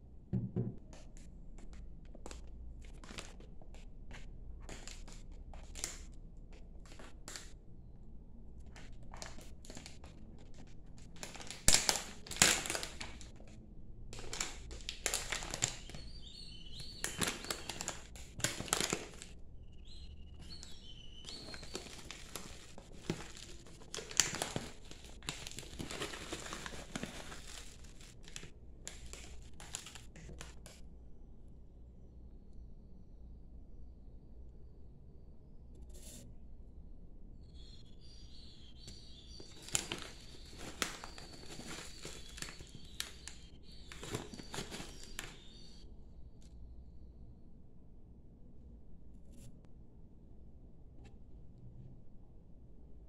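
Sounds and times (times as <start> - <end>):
foil pouch crinkling: 2.2 - 6.1, 6.8 - 7.5, 8.7 - 13.6, 14.2 - 30.7, 38.7 - 45.8.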